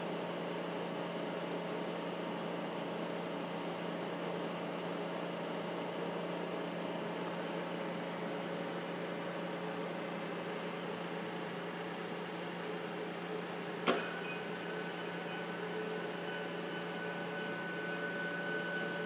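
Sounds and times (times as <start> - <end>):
machinery hum and hiss: 0.1 - 19.0
faint steady tones: 13.9 - 19.0.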